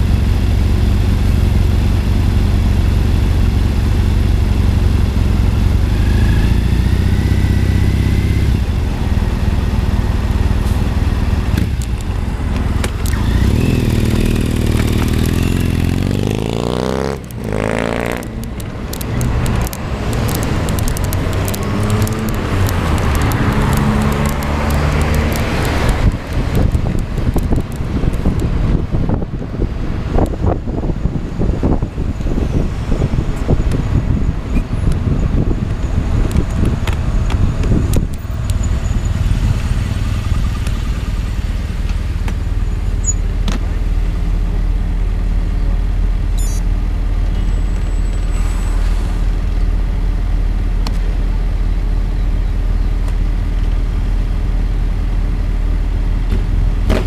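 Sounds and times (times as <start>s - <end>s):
vehicle engine low rumble: 0.0s - 57.0s
wind on microphone: 18.8s - 40.4s
vehicle engine passing: 19.1s - 26.7s.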